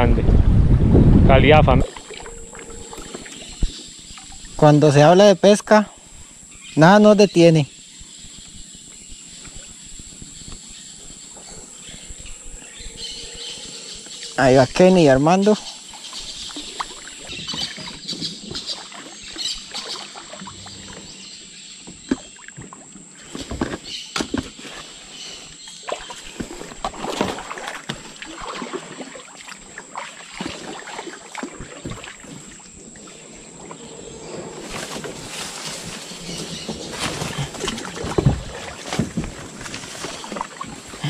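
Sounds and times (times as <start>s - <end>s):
paddle splashes in water: 1.8s - 4.6s, 15.9s - 21.1s, 25.7s - 33.8s, 34.4s - 41.0s.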